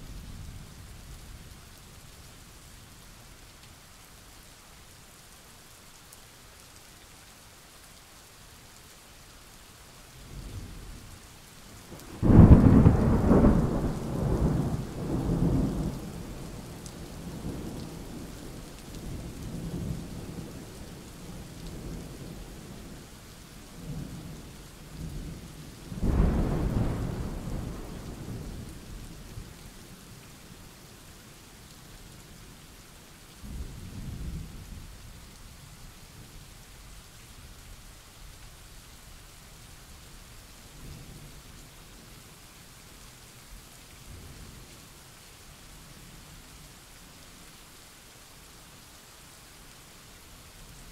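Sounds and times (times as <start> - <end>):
steady rain: 0.0 - 50.9
thunder: 12.2 - 16.4, 26.0 - 28.6.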